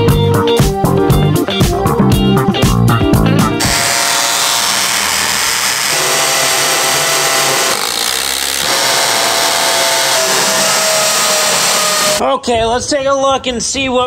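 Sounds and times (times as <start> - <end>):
power tool running: 3.6 - 12.2.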